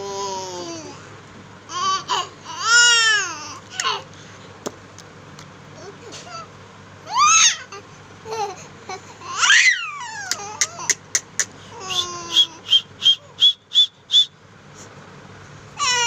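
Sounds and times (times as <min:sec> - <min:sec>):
baby squealing and babbling: 0:07.1 - 0:07.8, 0:09.2 - 0:10.9, 0:15.8 - 0:16.0.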